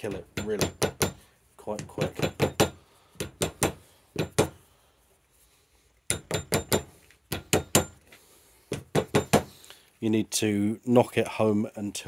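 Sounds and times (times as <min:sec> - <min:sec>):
hammer tapping a screwdriver: 0:00.1 - 0:01.2, 0:06.1 - 0:08.0.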